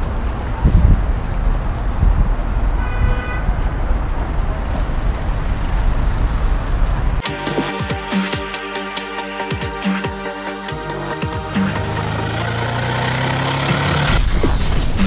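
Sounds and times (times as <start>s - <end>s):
city road traffic: 0.0s - 15.0s
car horn honk: 2.8s - 3.6s.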